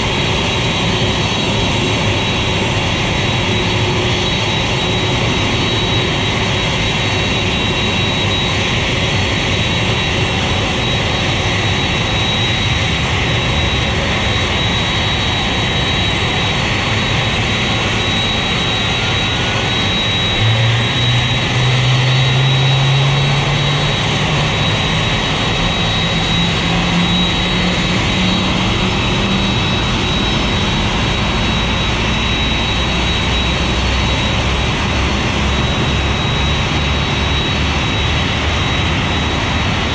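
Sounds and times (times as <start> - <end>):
jet engine spooling up: 0.0 - 39.9
jet whine and rushing: 0.0 - 39.9.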